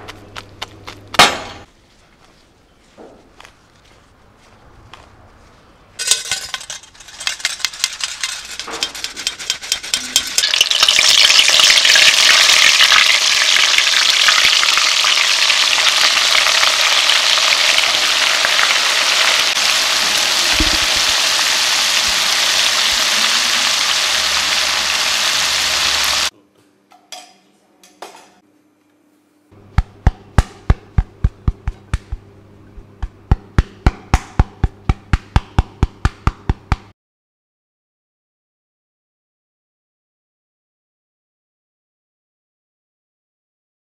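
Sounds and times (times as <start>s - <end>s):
flour sifter rattling: 6.0s - 11.2s
deep-frying sizzle: 8.4s - 26.3s.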